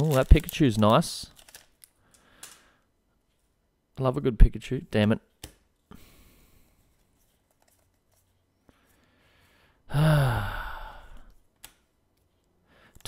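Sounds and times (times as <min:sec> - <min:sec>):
man sighing: 0:09.9 - 0:11.3.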